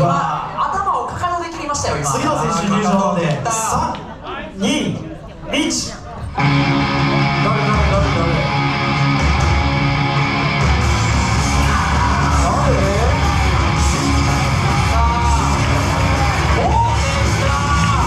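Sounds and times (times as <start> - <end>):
loud rock music with guitar: 6.4 - 18.0.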